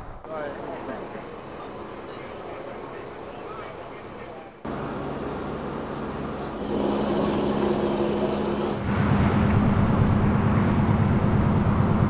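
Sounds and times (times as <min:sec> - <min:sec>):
rough fast-pulsing engine: 0:00.0 - 0:12.0
idling vehicle engines hum: 0:00.3 - 0:12.0.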